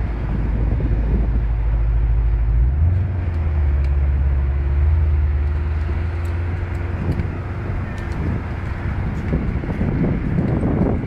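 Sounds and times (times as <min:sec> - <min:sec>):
car engine deep rumble: 0:00.0 - 0:11.0.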